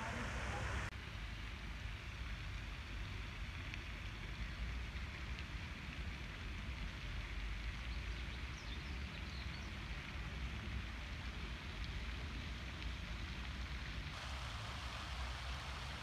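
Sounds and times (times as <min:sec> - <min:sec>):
hiss: 0:14.1 - 0:16.0.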